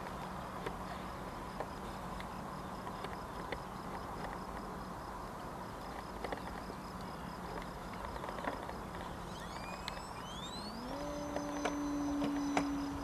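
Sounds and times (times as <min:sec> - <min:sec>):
faint steady hum: 0:00.0 - 0:13.0
fast high pulsing chirp: 0:09.2 - 0:13.0.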